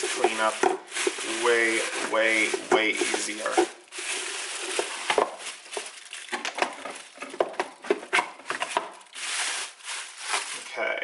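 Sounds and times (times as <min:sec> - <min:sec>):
plastic bag rustling: 0:00.0 - 0:11.0
plastic container clicks and knocks: 0:06.3 - 0:08.9.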